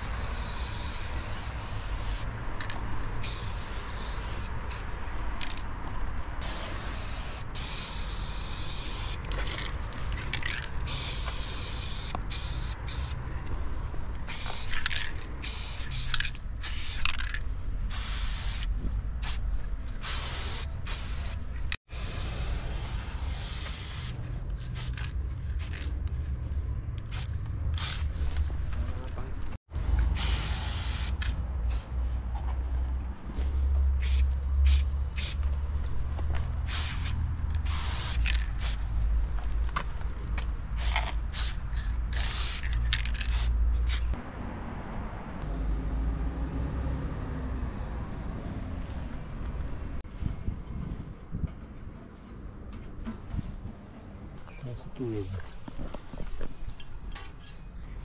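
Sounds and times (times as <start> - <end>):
spray paint can hissing: 0.0 - 2.3, 3.2 - 4.9, 6.4 - 9.3, 10.9 - 13.2, 14.2 - 17.3, 17.9 - 25.9, 27.1 - 28.2, 29.8 - 32.0, 34.0 - 44.2.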